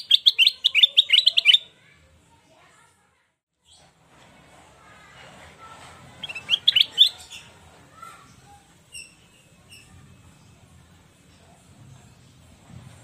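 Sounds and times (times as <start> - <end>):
short high bird chirps: 6.2 - 7.3
bird warbling: 6.2 - 7.5.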